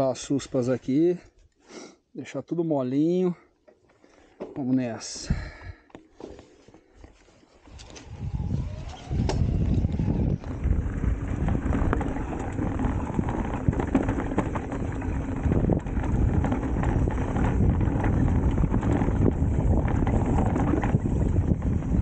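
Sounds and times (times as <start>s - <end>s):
tyres on dirt: 5.9s - 22.0s
wind buffeting microphone: 7.7s - 22.0s
bike knocks and rattles: 8.9s - 22.0s.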